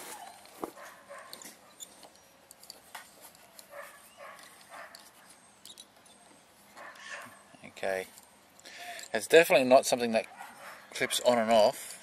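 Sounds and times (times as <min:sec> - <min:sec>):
small clicks and scrapes: 0:00.0 - 0:07.3.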